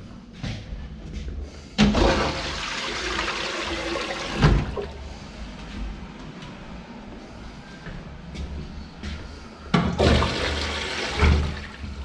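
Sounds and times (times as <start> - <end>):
toilet flushing: 1.8 - 5.1, 9.9 - 12.0.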